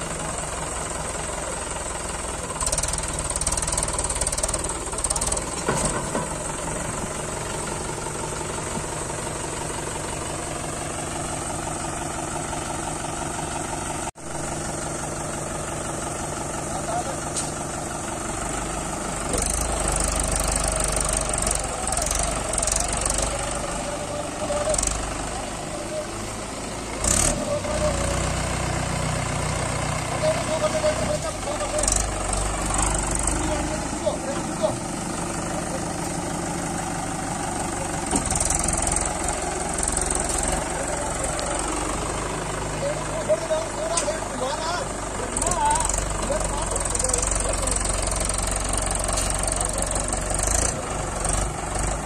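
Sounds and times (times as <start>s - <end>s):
tractor diesel engine under load: 0.0s - 52.0s.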